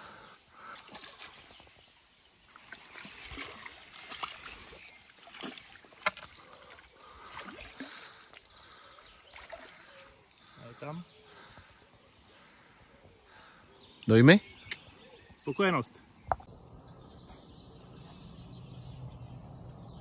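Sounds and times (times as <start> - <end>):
fish splashing in water: 2.6 - 10.0.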